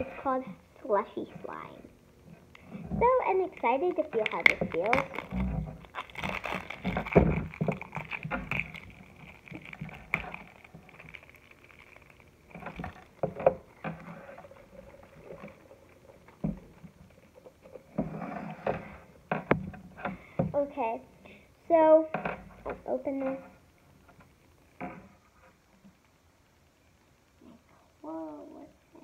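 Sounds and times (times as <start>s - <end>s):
plastic wrapping rustling and tearing: 2.8s - 19.8s.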